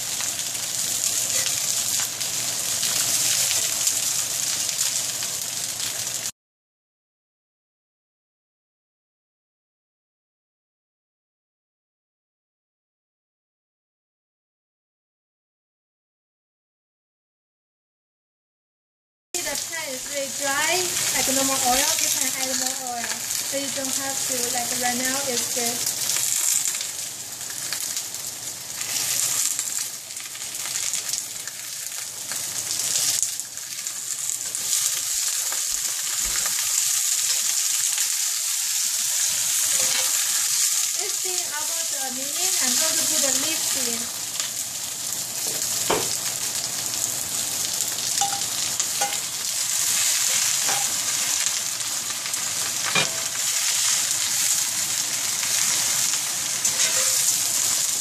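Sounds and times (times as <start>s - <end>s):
cabbage sizzling in hot oil: 0.0s - 6.3s, 19.4s - 58.0s
spatula scraping skillet: 38.7s - 40.8s, 48.2s - 51.6s, 52.3s - 58.0s.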